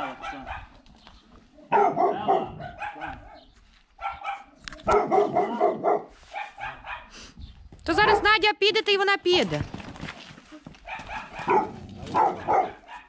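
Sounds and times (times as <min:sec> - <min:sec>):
dog barking: 0:00.0 - 0:00.8, 0:01.7 - 0:07.2, 0:08.0 - 0:08.4, 0:10.8 - 0:13.0.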